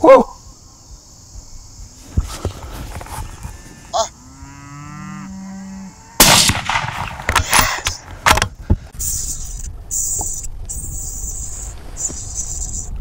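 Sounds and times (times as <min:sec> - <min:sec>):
rifle shot: 0:06.2 - 0:08.4.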